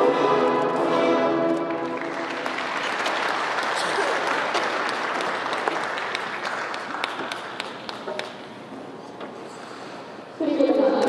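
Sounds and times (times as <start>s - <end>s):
audience applauding: 1.6s - 8.5s.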